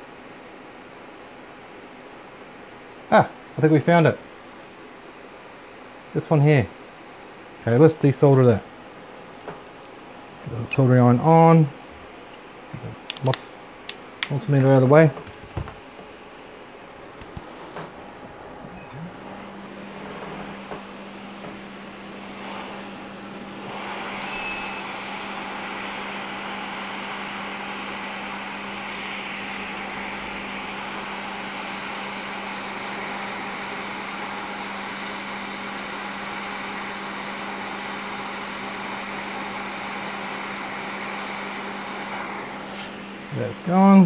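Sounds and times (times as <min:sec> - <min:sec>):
hot air station blowing: 0:16.8 - 0:44.0.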